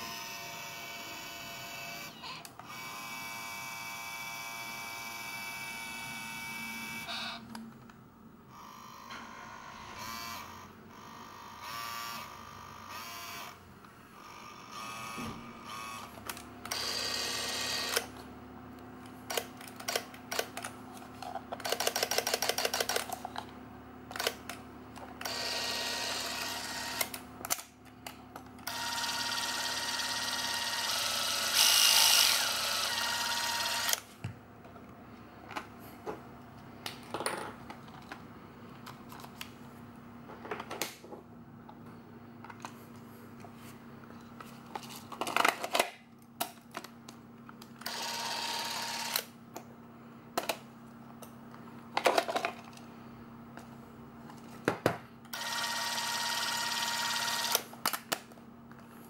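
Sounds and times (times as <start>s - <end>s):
film camera motor whirring: 0.0s - 7.4s, 8.5s - 13.6s, 14.2s - 18.2s, 25.2s - 27.7s, 28.6s - 34.1s, 47.8s - 49.3s, 55.3s - 57.7s.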